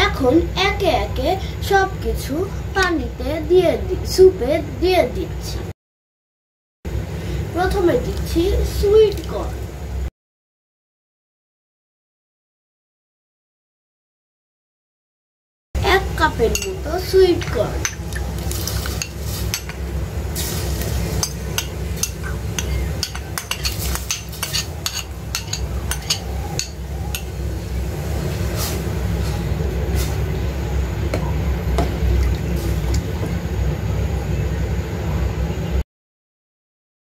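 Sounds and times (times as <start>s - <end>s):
steady low hum: 0.0s - 5.7s, 6.9s - 10.1s, 15.8s - 35.8s
metal ladle clinking in pot: 21.2s - 27.3s.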